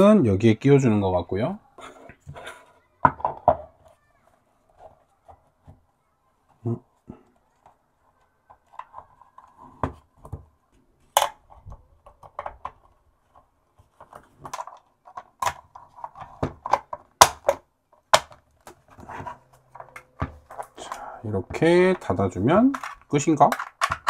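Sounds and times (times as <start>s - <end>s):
plastic clicks and knocks: 8.4s - 24.0s.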